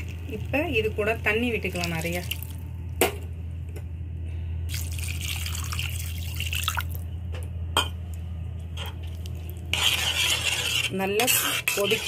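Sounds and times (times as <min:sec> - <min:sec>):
water pouring into a pan: 0:04.7 - 0:07.0.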